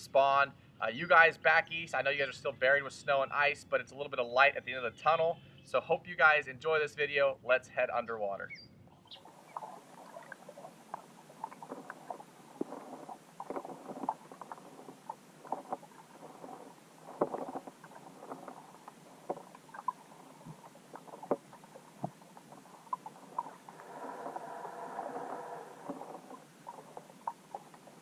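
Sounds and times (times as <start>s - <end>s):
small underwater clicks and knocks: 9.1s - 28.0s
faint underwater hiss: 9.2s - 28.0s.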